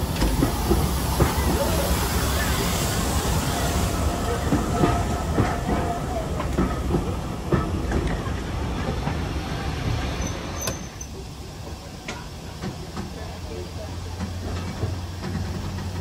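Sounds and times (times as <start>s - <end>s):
train wheels clacking over rail joints: 4.2s - 9.3s, 14.0s - 16.0s.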